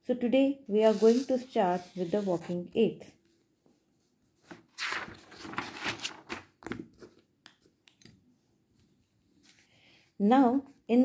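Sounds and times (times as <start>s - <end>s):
paper rustling and crinkling: 0.8s - 2.6s, 4.4s - 7.2s.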